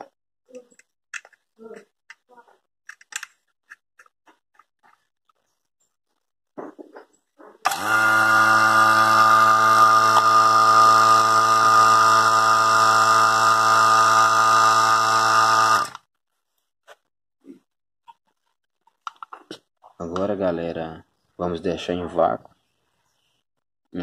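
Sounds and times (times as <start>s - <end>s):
vacuum pump motor hum: 7.7s - 16.0s.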